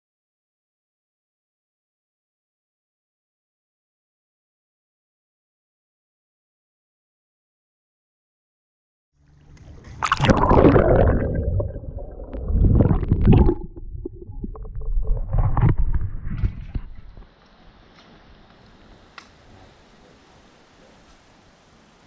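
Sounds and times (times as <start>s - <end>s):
water sloshing and gurgling: 9.6s - 17.2s
wind rumble on microphone: 11.8s - 17.3s
outdoor hiss: 17.1s - 22.0s.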